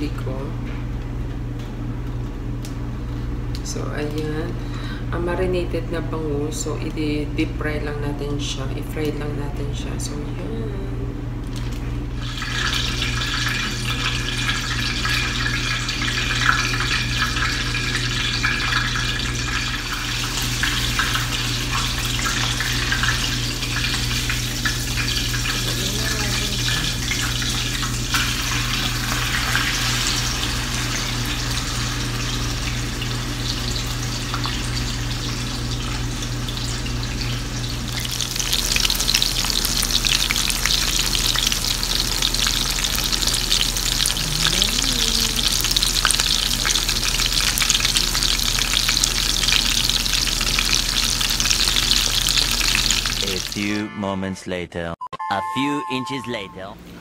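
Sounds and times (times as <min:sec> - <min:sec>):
fish deep-frying in oil: 0:11.5 - 0:53.6.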